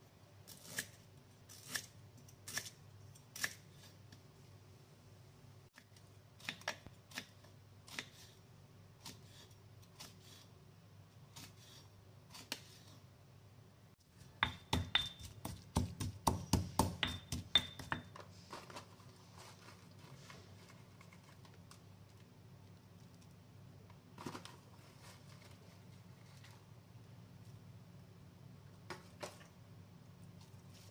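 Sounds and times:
knife chopping on wooden board: 0:14.4 - 0:18.1.

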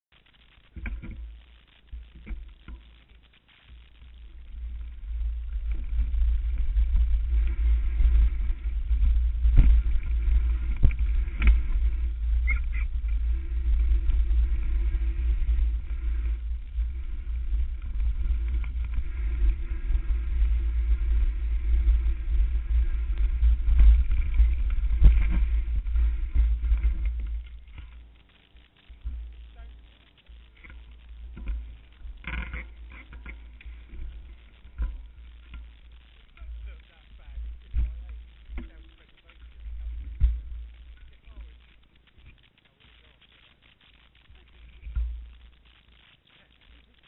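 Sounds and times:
tyre rumble: 0:00.2 - 0:47.0
wind buffeting microphone: 0:04.2 - 0:28.1
bike knocks and rattles: 0:04.3 - 0:28.2, 0:28.9 - 0:41.6.

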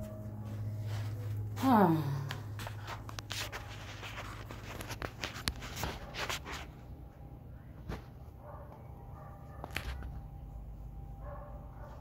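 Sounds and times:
footsteps and scuffs: 0:00.0 - 0:06.9.

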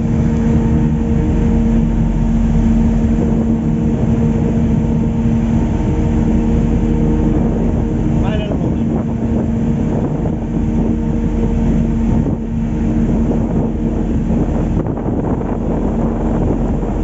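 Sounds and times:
boat engine running: 0:00.0 - 0:17.0
water noise: 0:00.0 - 0:17.0
wind noise: 0:00.0 - 0:17.0.

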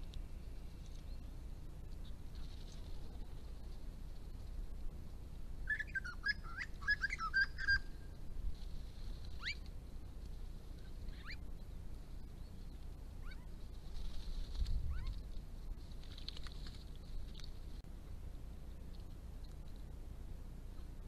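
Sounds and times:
upward sweeping bird calls: 0:05.7 - 0:08.1.

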